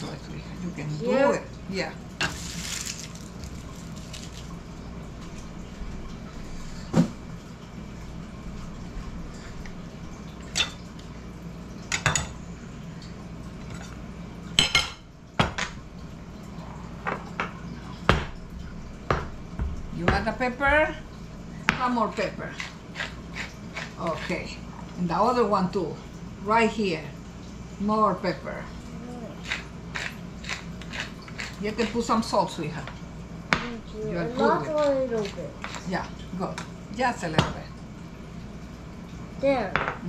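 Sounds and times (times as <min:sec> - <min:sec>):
utensils knocking on cutting boards: 0:19.1 - 0:20.9.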